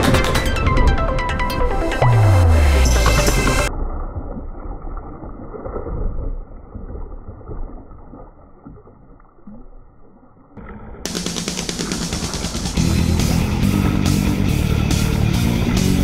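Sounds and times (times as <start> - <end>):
electronic music: 0.0 - 3.7, 11.1 - 16.0
water sloshing and splashing: 3.0 - 16.0.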